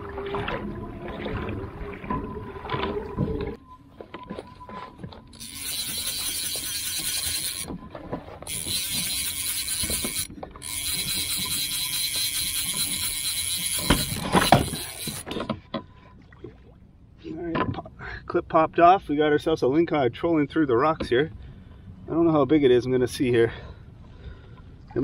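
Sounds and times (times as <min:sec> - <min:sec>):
fishing reel ratcheting whir: 0:05.4 - 0:07.7, 0:08.4 - 0:15.4.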